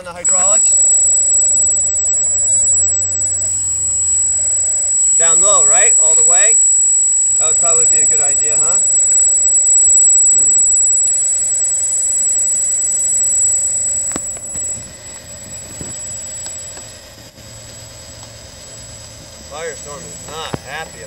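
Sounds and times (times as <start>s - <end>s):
electric hydraulic pump whining: 0.0s - 21.0s
click: 14.0s - 14.8s.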